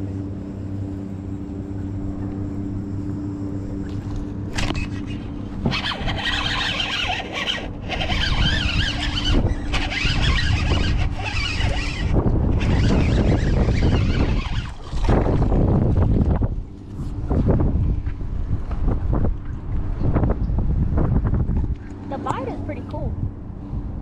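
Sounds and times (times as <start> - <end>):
electric motor humming: 0.0 - 16.6
fishing reel whirring and scraping: 4.5 - 16.0
wind noise: 4.5 - 24.0.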